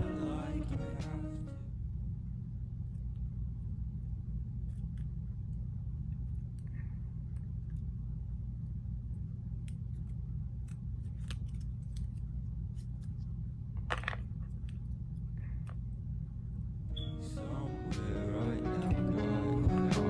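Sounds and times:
steady low hum: 0.0 - 20.0
cable clicks and rustling: 9.6 - 15.9.

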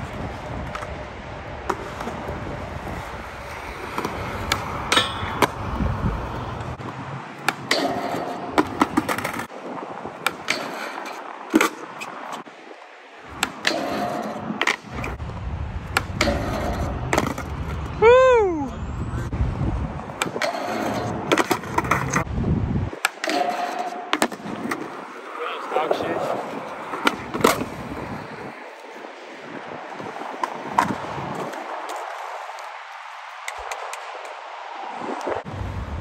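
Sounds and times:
skateboard wheels rolling on concrete: 0.0 - 36.0
skateboard clacks and knocks: 7.4 - 9.5, 10.2 - 11.9, 13.3 - 15.2, 15.9 - 17.9, 20.1 - 22.3, 23.0 - 25.2, 25.9 - 28.2, 30.3 - 32.7.

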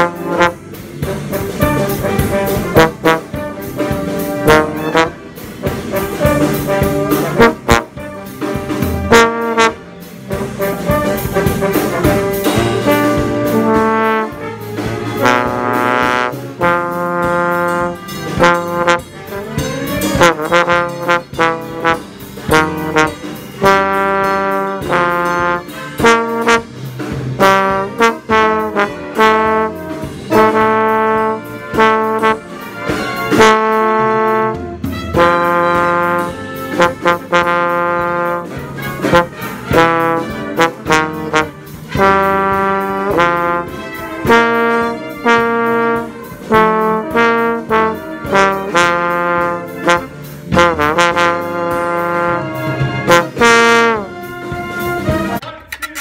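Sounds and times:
slide trombone playing: 0.0 - 56.0.

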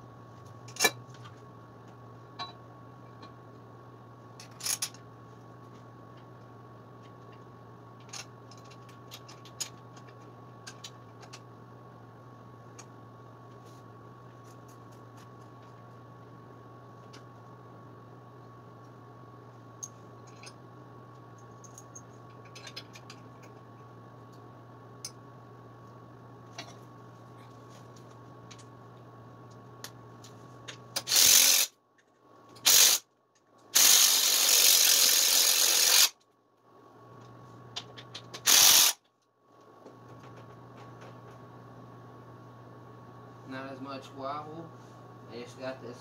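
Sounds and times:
cordless impact wrench bursts: 31.0 - 31.7, 32.6 - 33.0, 33.8 - 36.2, 38.4 - 39.0.

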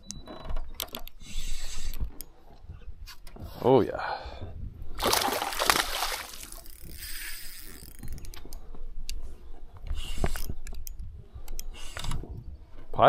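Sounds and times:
fishing reel gear clicks: 6.4 - 9.2.

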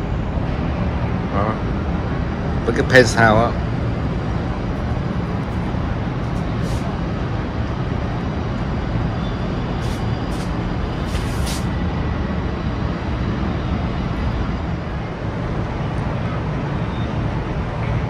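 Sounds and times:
road traffic rumble: 0.0 - 18.0
short hisses: 6.6 - 6.9, 9.8 - 11.7.

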